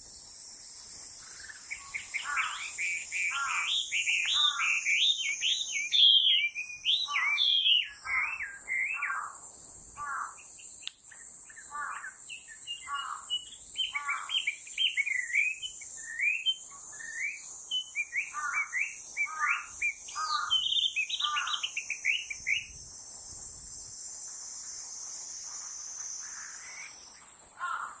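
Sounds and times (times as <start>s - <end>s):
bird singing whistled phrases: 1.7s - 9.1s, 12.4s - 22.7s.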